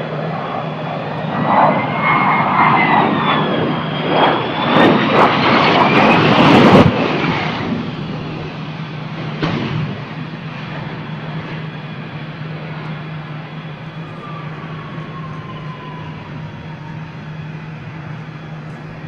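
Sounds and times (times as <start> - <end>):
jet engine roaring with high whine: 0.0 - 19.0.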